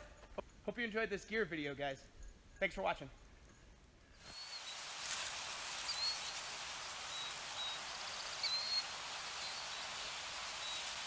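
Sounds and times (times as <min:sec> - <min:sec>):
steady hiss: 0:00.0 - 0:11.0
high bird chirps: 0:04.2 - 0:04.8, 0:05.8 - 0:06.5, 0:07.1 - 0:10.0.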